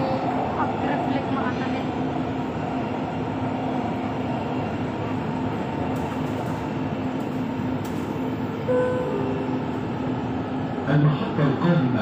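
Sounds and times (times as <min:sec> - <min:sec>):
train rolling rumble: 0:00.0 - 0:12.0
constant low hum: 0:02.8 - 0:12.0.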